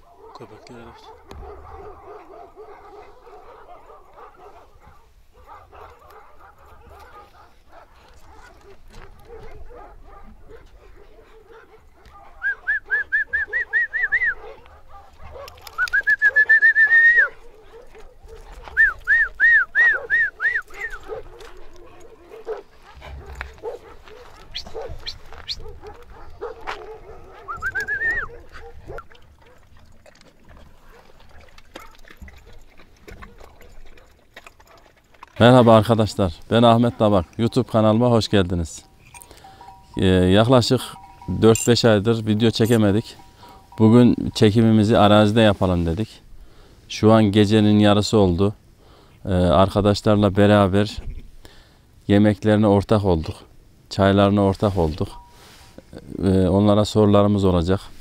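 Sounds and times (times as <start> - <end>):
dogs whining and yelping: 0.0 - 30.2.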